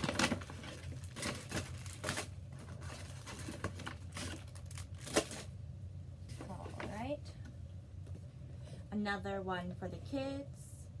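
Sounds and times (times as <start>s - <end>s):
paper bag rustling: 0.0s - 5.5s.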